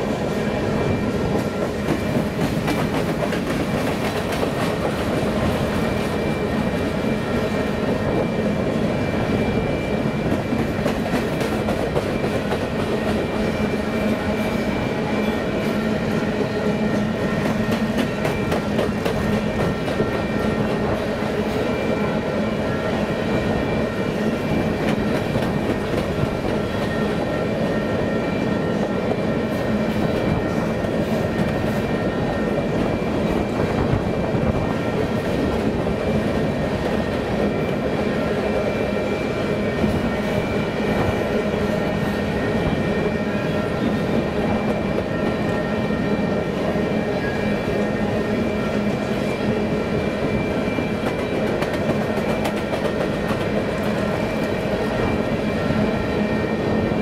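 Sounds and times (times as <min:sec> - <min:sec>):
steel wheels rumbling on rails: 0:00.0 - 0:57.0.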